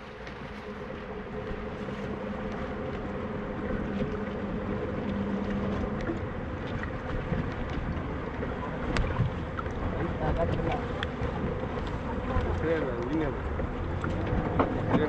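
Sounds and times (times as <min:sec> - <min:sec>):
low motor hum: 0:00.0 - 0:15.0
water lapping against boat: 0:00.0 - 0:15.0
wind buffeting microphone: 0:00.0 - 0:15.0.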